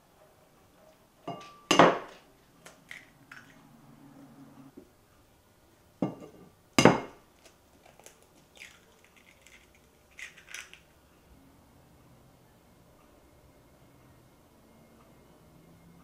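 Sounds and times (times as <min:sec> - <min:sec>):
eggshell crackling: 0:07.4 - 0:11.0.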